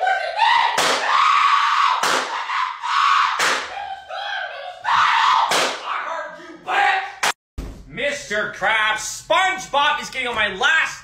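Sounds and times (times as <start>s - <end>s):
loud harsh screaming: 0.0s - 5.8s.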